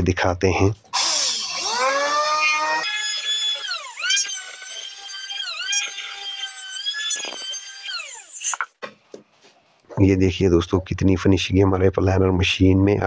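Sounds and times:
electric planer whining: 0:01.0 - 0:08.6.

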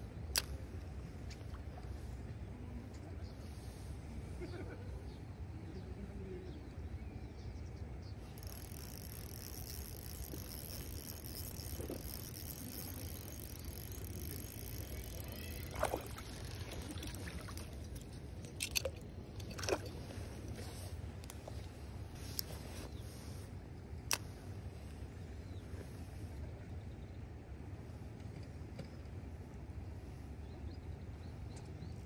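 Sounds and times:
fish splashing in water: 0:08.6 - 0:20.0.

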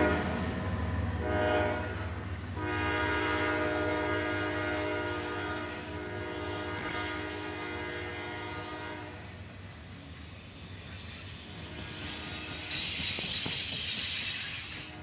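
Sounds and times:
distant locomotive horn: 0:00.0 - 0:09.3
freight cars rumbling on rails: 0:00.0 - 0:15.0.

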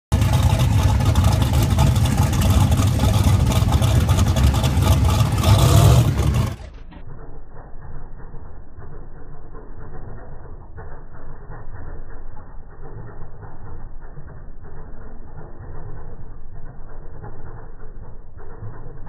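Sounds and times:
loud truck engine revving: 0:00.1 - 0:06.8
muffled low engine rumble: 0:00.1 - 0:19.0.

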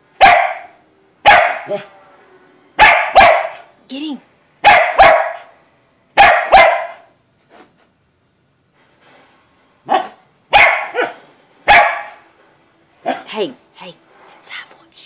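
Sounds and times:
dog barking: 0:00.2 - 0:01.9, 0:02.8 - 0:03.7, 0:04.6 - 0:05.6, 0:06.2 - 0:07.2, 0:09.8 - 0:12.2, 0:13.0 - 0:13.3.

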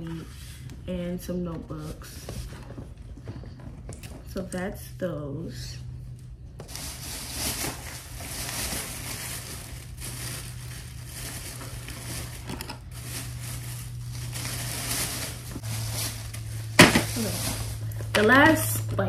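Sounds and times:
low steady hum: 0:00.0 - 0:19.0
bag and packaging rustling: 0:06.0 - 0:19.0.

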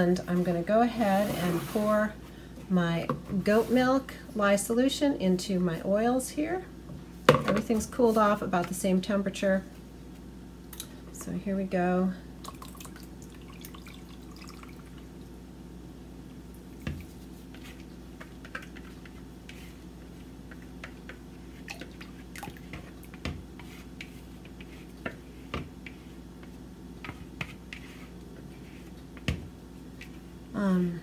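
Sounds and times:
liquid trickling and dripping: 0:12.4 - 0:15.0, 0:21.7 - 0:22.6.

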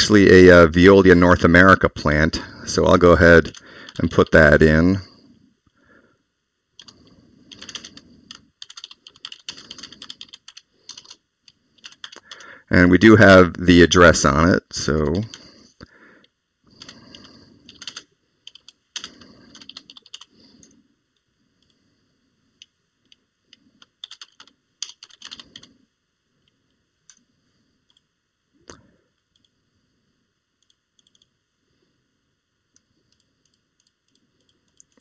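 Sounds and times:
typing on computer keyboard: 0:06.8 - 0:11.2, 0:11.8 - 0:12.4, 0:16.8 - 0:20.3, 0:23.8 - 0:25.7, 0:30.6 - 0:31.3.

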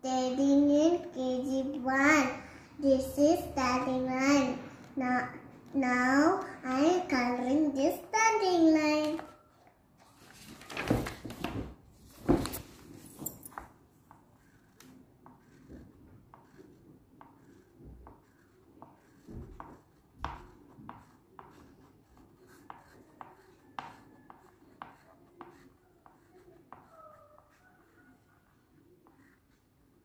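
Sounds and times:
colour stick scratching on paper: 0:13.0 - 0:30.0.

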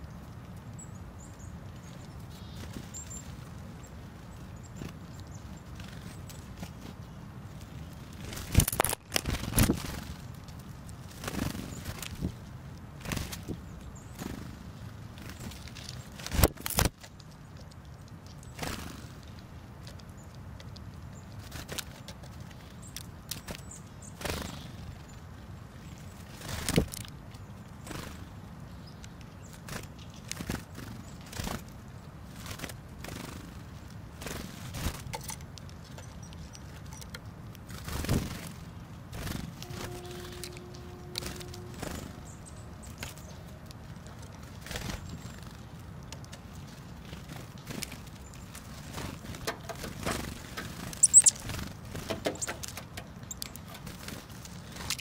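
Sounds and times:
bird wing flutters: 0:08.2 - 0:10.3, 0:11.1 - 0:12.4, 0:26.3 - 0:27.1, 0:37.7 - 0:43.3
birds pecking taps and clicks: 0:15.2 - 0:24.6, 0:34.8 - 0:38.5, 0:42.9 - 0:55.0.

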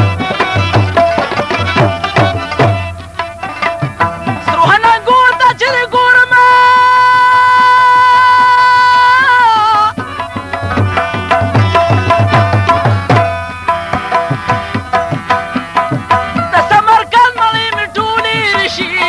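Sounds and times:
tabla strokes: 0:00.0 - 0:19.0
moving melody: 0:10.0 - 0:16.5.

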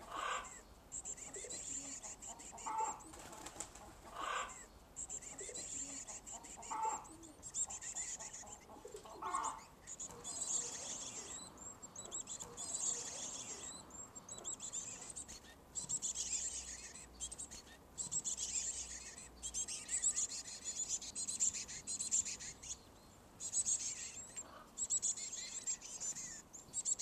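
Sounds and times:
nestlings begging calls: 0:00.0 - 0:27.0
wing flutters: 0:03.1 - 0:04.0.

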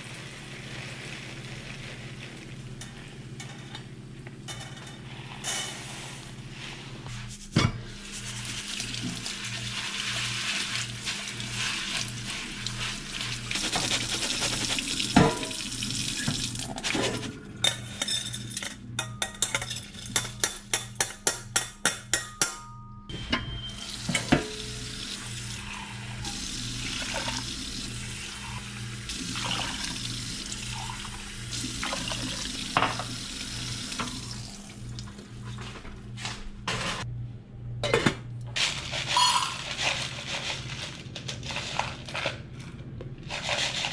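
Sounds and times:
tap running water: 0:10.6 - 0:17.3, 0:23.9 - 0:35.3.

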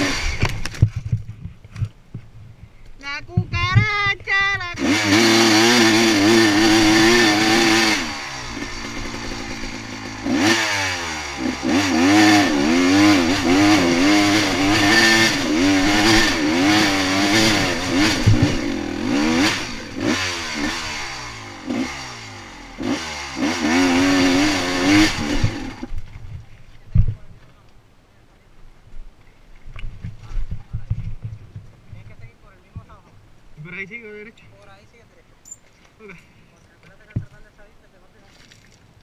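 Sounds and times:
dirt bike engine revving: 0:00.0 - 0:00.8, 0:04.7 - 0:26.0.

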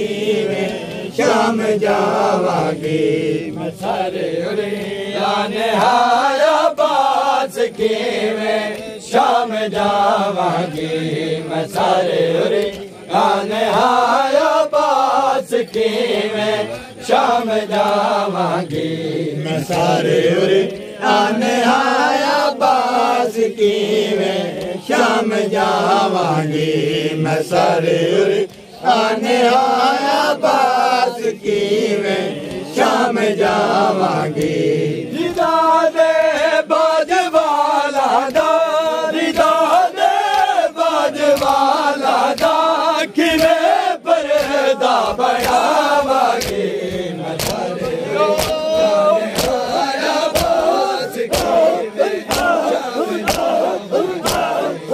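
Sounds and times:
men chanting a lament: 0:00.0 - 0:54.9
hands slapping chests: 0:00.4 - 0:04.0, 0:04.6 - 0:21.8, 0:31.3 - 0:54.9.

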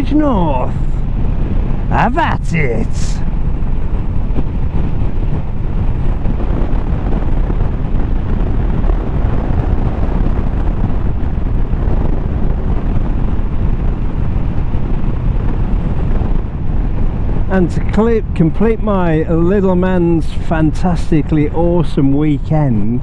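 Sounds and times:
road noise: 0:00.0 - 0:23.0
wind buffeting helmet microphone: 0:00.0 - 0:23.0.

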